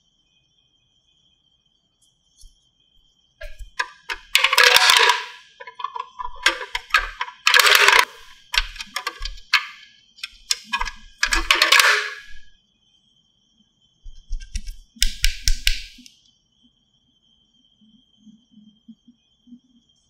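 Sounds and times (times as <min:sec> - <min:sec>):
toy cans clattering into machine: 0:03.4 - 0:12.5.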